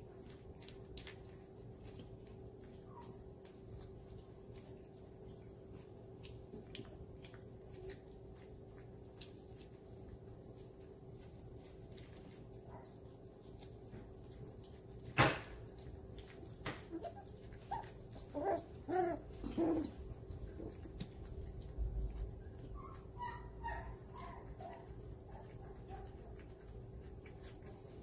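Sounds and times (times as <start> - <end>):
faint steady hum: 0.0 - 28.0
puppies whimpering and yipping: 16.7 - 26.3.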